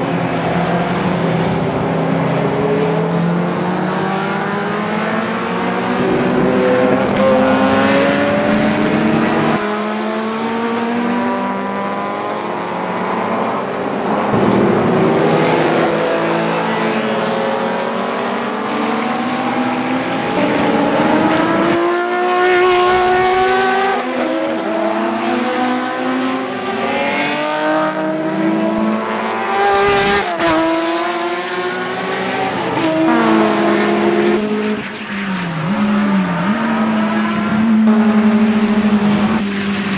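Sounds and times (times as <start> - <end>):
race cars passing at speed: 0.0 - 39.9.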